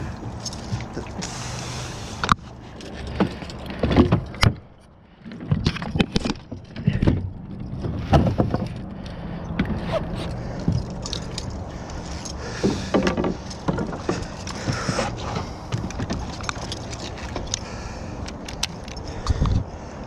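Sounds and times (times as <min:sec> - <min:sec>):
water washing around boat: 0:00.0 - 0:03.8.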